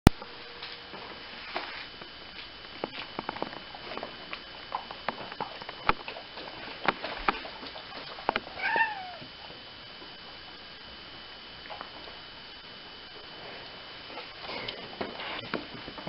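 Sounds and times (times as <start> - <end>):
cat meowing: 8.5 - 9.3.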